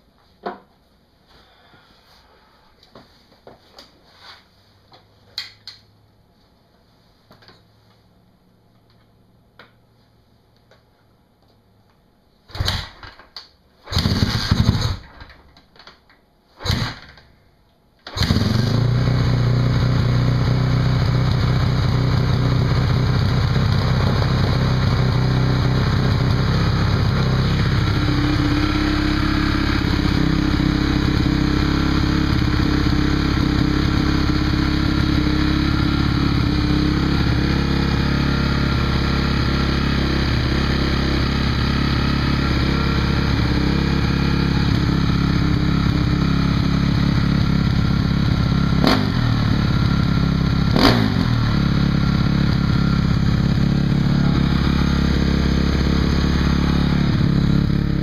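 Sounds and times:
dirt bike being kick-started: 13.9s - 15.4s, 18.1s - 18.8s
dirt bike engine idling: 18.2s - 58.0s.

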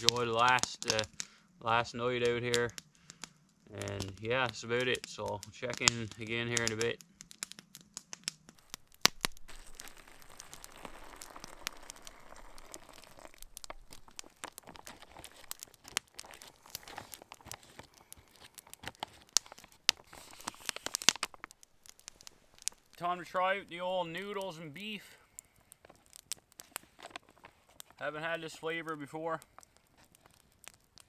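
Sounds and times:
foil pouch crinkling: 5.2s - 31.0s
water pouring: 8.6s - 17.8s.

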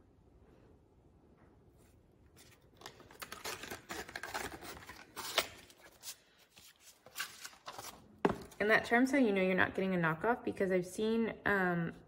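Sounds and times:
paper and card rustling: 2.3s - 8.6s.

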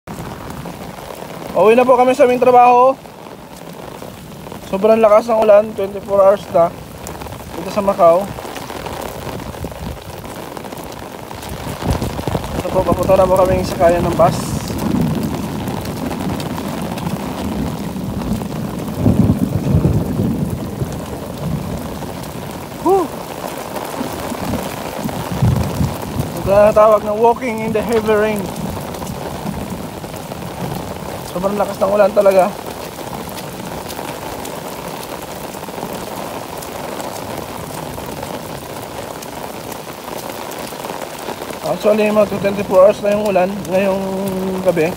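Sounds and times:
heavy rain pouring: 0.0s - 44.9s
wind buffeting microphone: 6.1s - 41.3s.

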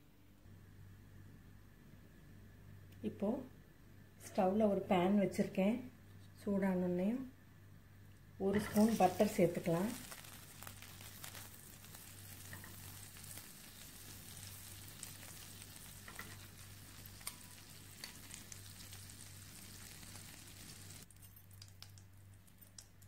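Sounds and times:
butter sizzling in a frying pan: 8.6s - 22.0s.

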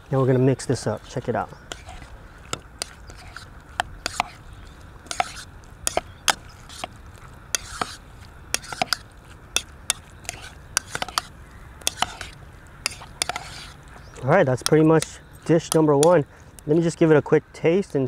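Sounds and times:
wet squishing of food: 1.1s - 14.3s
metal spoon scraping a bowl: 1.7s - 4.4s, 5.0s - 13.8s.

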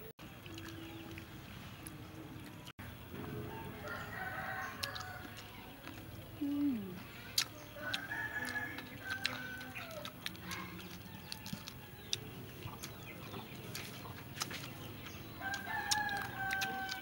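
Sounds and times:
rooster crowing: 3.3s - 5.4s, 7.8s - 10.1s, 15.4s - 17.0s
chicken wings crunching: 3.8s - 6.1s, 7.1s - 17.0s.

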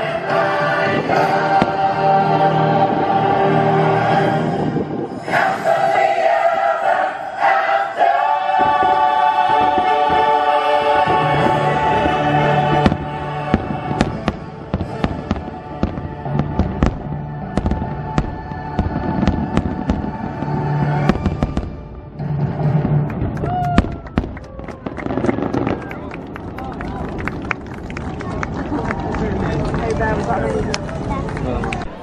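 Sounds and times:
choir holding a chord: 0.0s - 21.7s.

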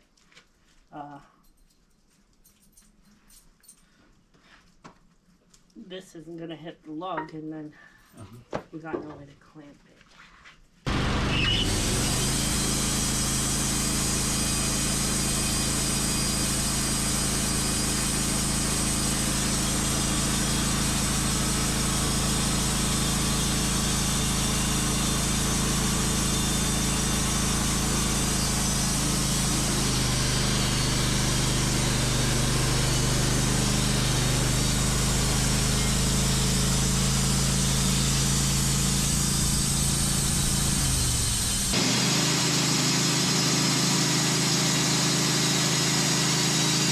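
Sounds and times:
sawmill running: 10.9s - 46.9s.

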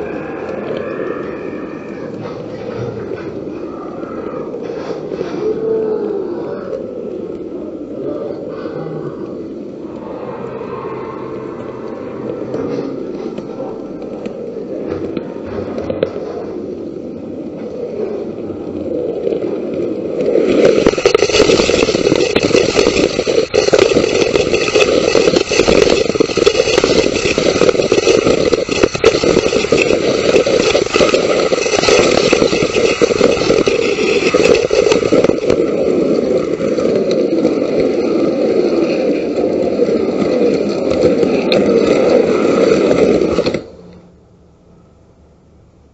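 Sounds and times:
roller coaster wheels rumbling on wooden track: 0.0s - 43.9s.

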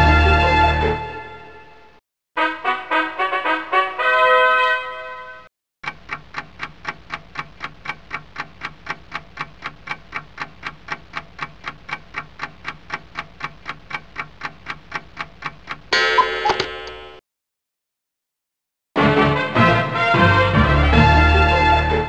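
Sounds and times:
clock ticking: 5.8s - 17.1s.

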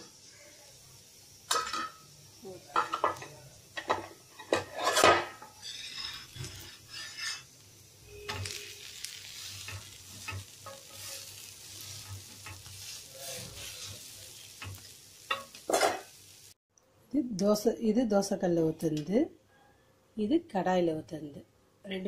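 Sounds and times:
pancake sizzling in oil: 0.0s - 16.6s
spatula scraping a pan: 4.4s - 16.2s.

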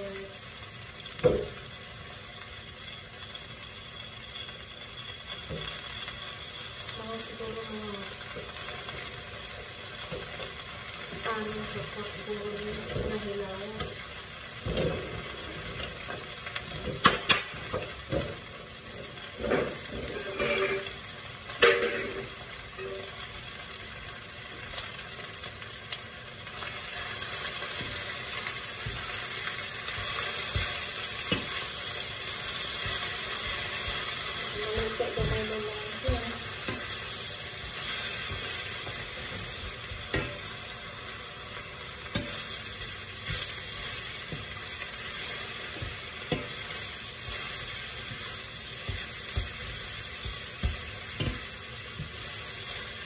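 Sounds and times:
food sizzling in a pan: 0.0s - 53.0s
utensils knocking and clattering: 19.4s - 20.9s.

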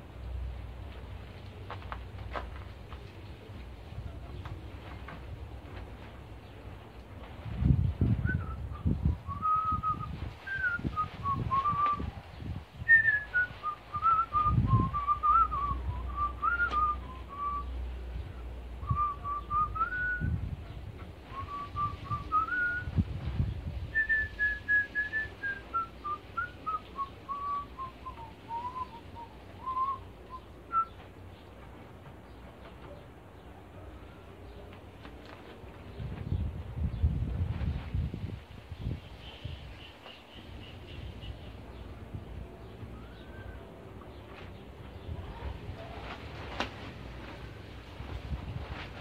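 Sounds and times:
person whistling a tune: 8.3s - 12.0s, 12.9s - 17.7s, 24.0s - 31.0s.

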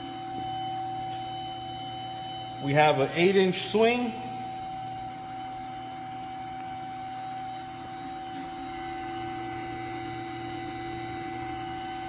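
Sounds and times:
machinery hum with tones: 0.0s - 12.0s.

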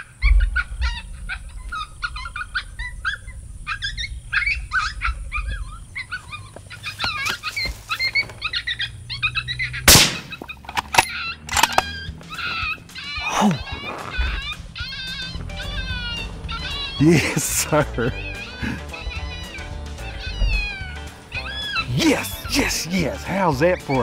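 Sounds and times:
electronic coyote yips and whines: 0.0s - 22.6s
rifle shot: 9.9s - 10.4s
sharp clicks: 9.9s - 12.0s.

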